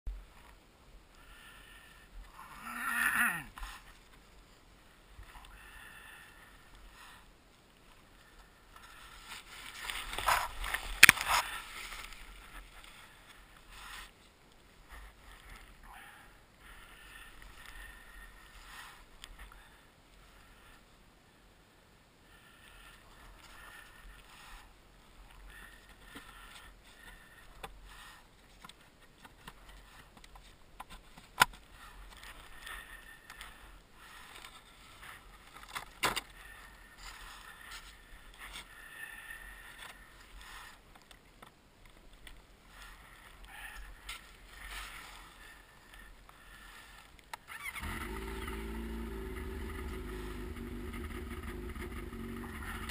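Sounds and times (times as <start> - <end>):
snow scraping and rustling: 8.9 - 15.4, 44.2 - 45.9.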